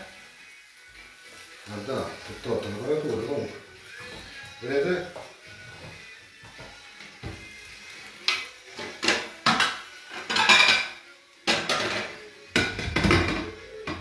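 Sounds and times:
kitchenware clattering: 8.3s - 14.0s.

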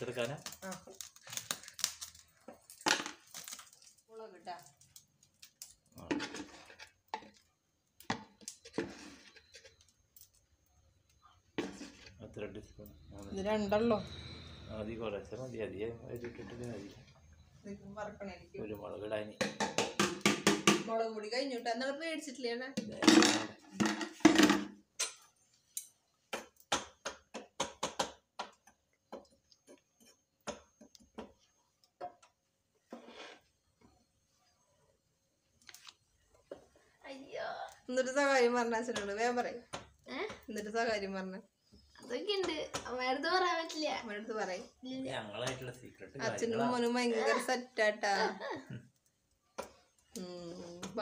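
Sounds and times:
rustling and scraping: 6.0s - 7.5s, 8.3s - 9.9s, 11.6s - 12.3s, 32.8s - 34.8s.

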